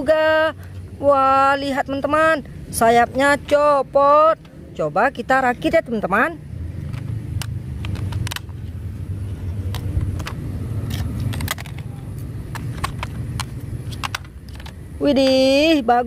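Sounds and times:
steady low rumble: 0:00.0 - 0:16.0
hard plastic toy clicks and knocks: 0:06.9 - 0:08.6, 0:09.7 - 0:15.4.

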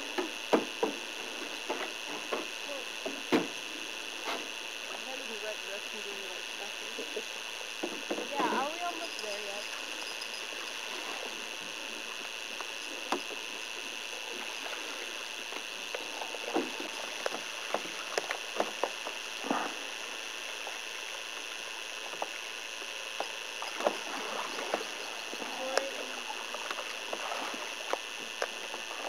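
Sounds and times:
steady hiss: 0:00.0 - 0:29.0
water splashing: 0:23.6 - 0:29.0.

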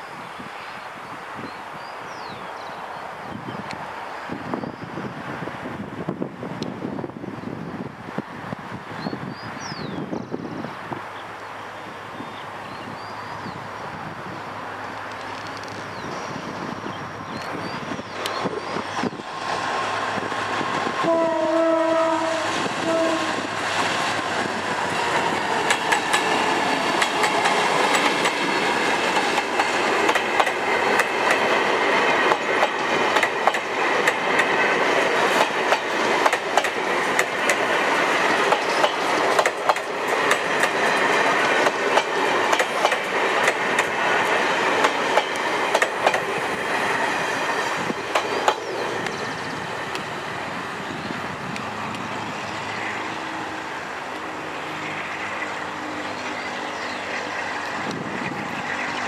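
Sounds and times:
train wheels clacking over rail joints: 0:20.4 - 0:50.0
locomotive horn blasts: 0:21.0 - 0:23.5.

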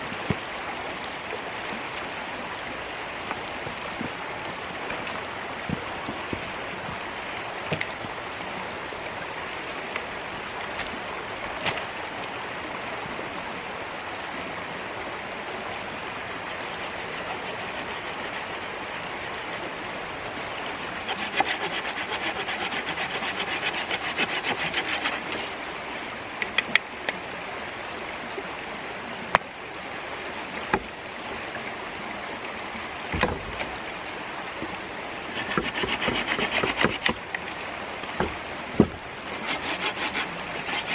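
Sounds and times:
creek water flowing over stones: 0:00.0 - 0:40.9
saw cutting branch: 0:16.4 - 0:25.5, 0:35.3 - 0:37.2, 0:38.2 - 0:40.9
wood cracks and knocks: 0:33.1 - 0:33.7.

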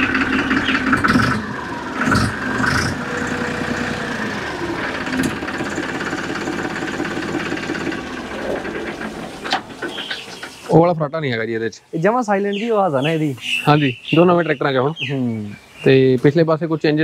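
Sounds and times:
diesel tractor engine idling: 0:00.0 - 0:11.6.

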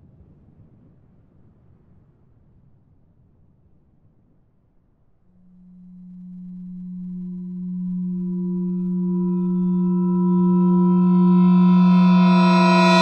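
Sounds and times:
sustained low drone: 0:05.4 - 0:13.0.

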